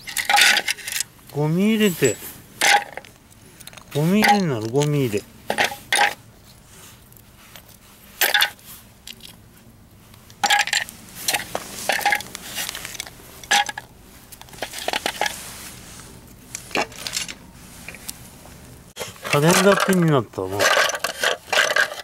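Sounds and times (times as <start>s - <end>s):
hard plastic parts clattering: 0.0s - 1.1s, 2.6s - 6.2s, 10.4s - 15.4s, 16.6s - 18.1s, 19.0s - 22.0s.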